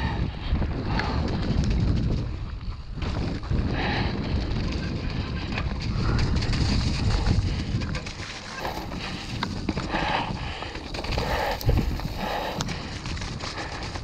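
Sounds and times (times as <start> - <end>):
wind rumbling on microphone: 0.0 - 14.0
bike rattling and knocking: 0.8 - 14.0
tyres on wet dirt and puddles: 4.4 - 14.0.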